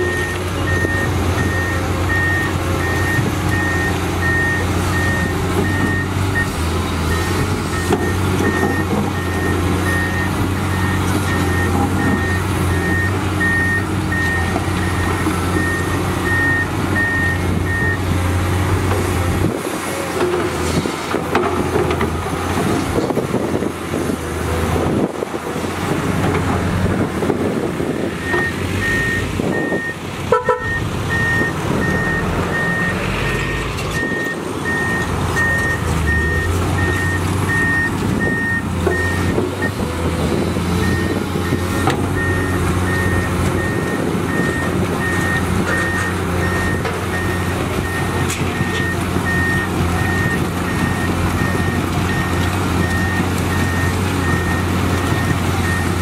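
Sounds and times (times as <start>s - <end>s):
reversing alarm beeping: 0.0s - 6.5s, 7.1s - 18.0s, 28.2s - 39.8s, 40.8s - 41.6s, 42.2s - 56.0s
excavator diesel engine running: 0.0s - 56.0s.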